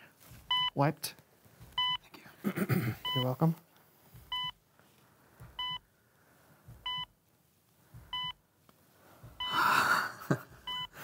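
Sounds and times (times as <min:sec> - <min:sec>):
rustling noise: 0:00.0 - 0:02.1, 0:03.4 - 0:09.5
heart-rate monitor beeping: 0:00.4 - 0:00.8, 0:01.7 - 0:02.1, 0:02.9 - 0:03.4, 0:04.2 - 0:04.6, 0:05.4 - 0:06.0, 0:06.6 - 0:07.2, 0:07.9 - 0:08.5, 0:09.2 - 0:11.0.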